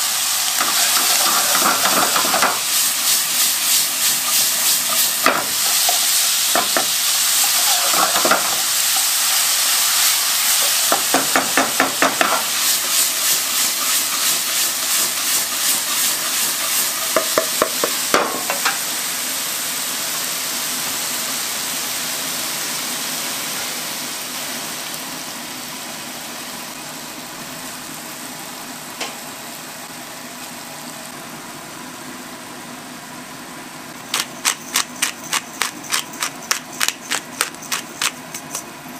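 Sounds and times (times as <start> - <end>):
food sizzling in a wok: 0.0 - 38.9
wooden ladle scraping a pan: 0.6 - 2.6, 7.4 - 8.6.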